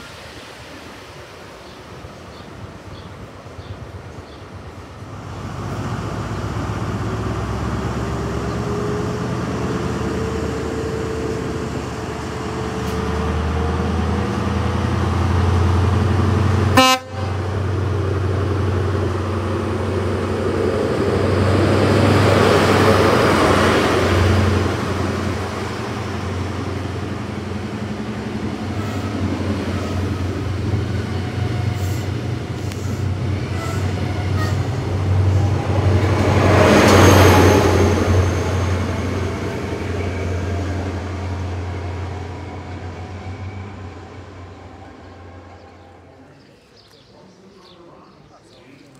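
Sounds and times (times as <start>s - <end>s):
rushing noise of passing train: 0.0s - 47.9s
train coaches rolling past: 0.0s - 48.9s
train horn toot: 16.7s - 17.5s.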